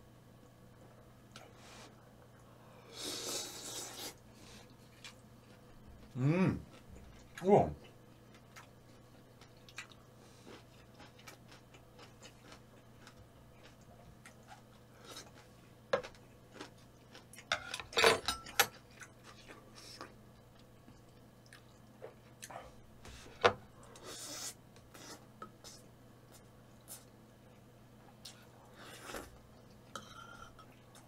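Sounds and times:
person chewing: 3.2s - 7.4s, 8.1s - 17.9s.

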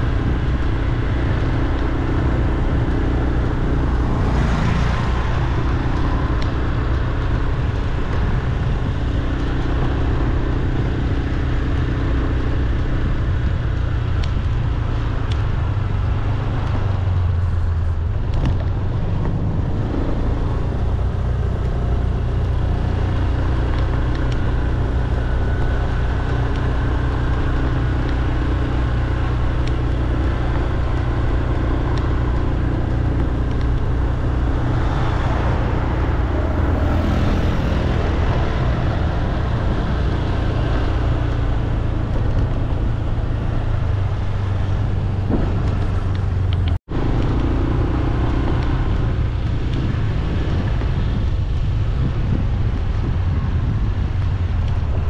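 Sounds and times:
road traffic: 0.0s - 55.0s
vehicle passing: 3.9s - 5.7s, 34.3s - 41.8s.

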